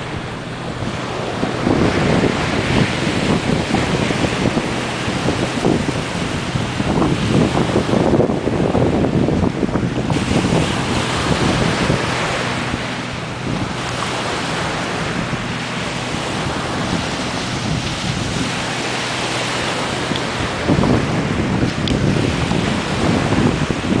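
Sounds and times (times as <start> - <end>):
surf washing on a beach: 0.0 - 24.0
wind buffeting microphone: 0.0 - 24.0.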